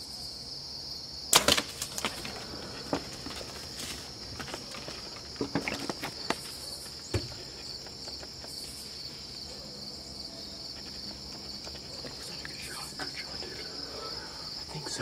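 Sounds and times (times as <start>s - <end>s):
crickets trilling: 0.0s - 15.0s
knocks and rustles: 1.4s - 8.7s.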